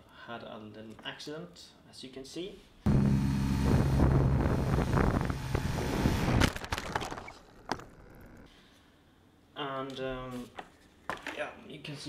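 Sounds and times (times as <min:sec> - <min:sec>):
model plane motor buzzing: 0:02.9 - 0:06.5
wind on microphone: 0:03.6 - 0:06.4.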